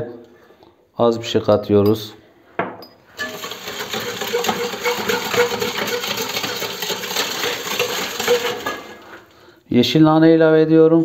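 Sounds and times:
whisk rattling in metal bowl: 3.2s - 9.3s
liquid swishing: 3.2s - 9.4s.

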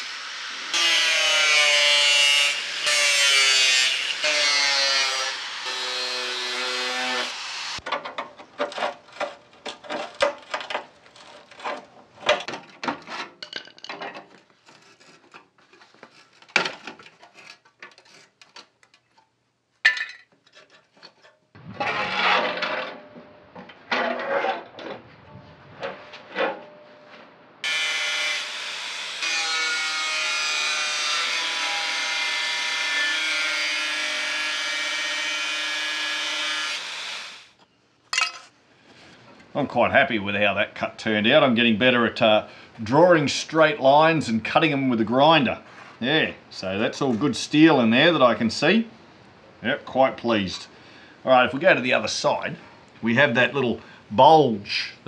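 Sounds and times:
angle grinder cutting metal: 0.0s - 7.8s, 27.6s - 37.5s.

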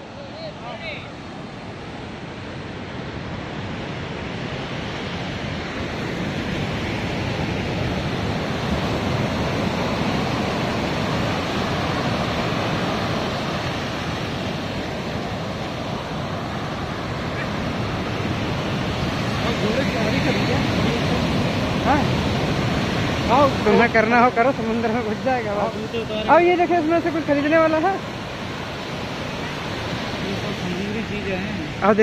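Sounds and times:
surf washing up a beach: 0.0s - 32.0s
wind on microphone: 1.3s - 25.3s.

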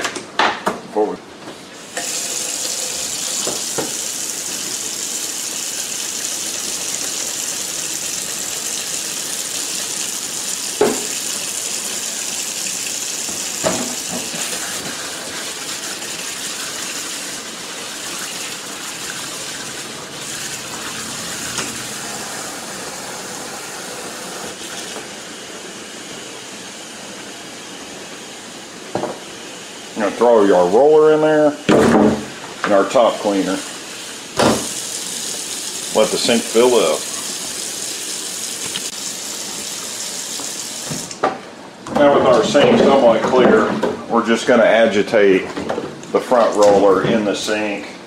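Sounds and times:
faucet running into metal sink: 1.9s - 23.5s, 34.4s - 41.2s.

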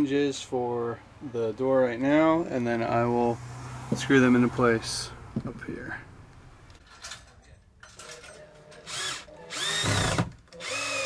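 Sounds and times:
cordless drill motor whine: 8.9s - 11.0s.

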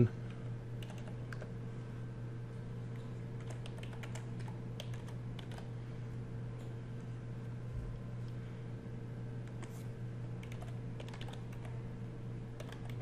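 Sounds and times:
steady low hum: 0.0s - 13.0s
keyboard typing: 0.8s - 1.5s, 2.9s - 5.7s, 10.4s - 11.8s, 12.6s - 13.0s.

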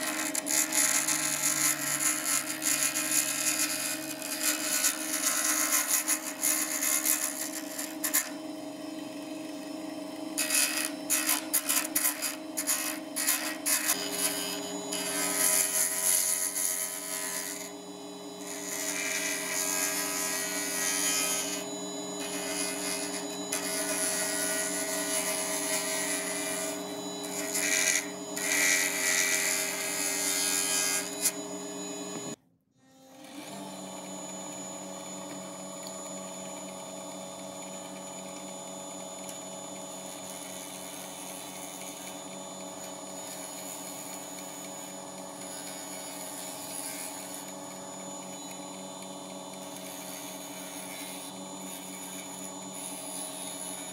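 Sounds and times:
turning tool scraping wood: 0.0s - 8.4s, 10.4s - 17.7s, 18.4s - 31.4s, 49.7s - 53.9s
wood lathe motor hum: 0.0s - 53.9s.

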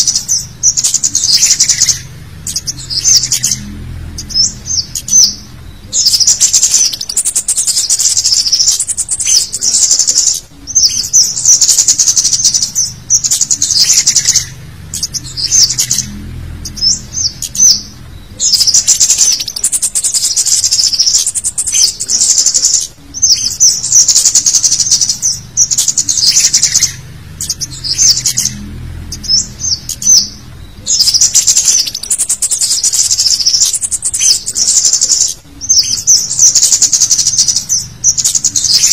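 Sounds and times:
birds chirping and twittering: 0.0s - 38.9s.

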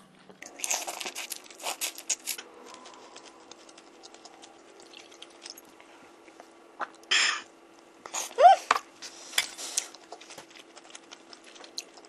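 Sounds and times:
faint steady hum: 0.0s - 12.0s
shrimp being peeled and chewed: 0.2s - 7.1s, 7.8s - 12.0s
crunching rustle: 0.4s - 5.7s.

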